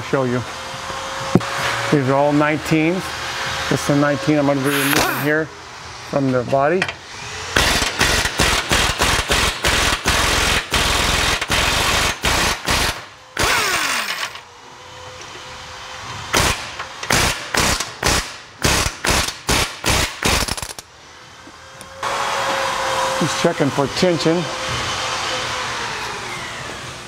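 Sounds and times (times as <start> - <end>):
pneumatic impact wrench hammering: 4.7 - 5.3, 7.5 - 14.4, 16.3 - 20.8.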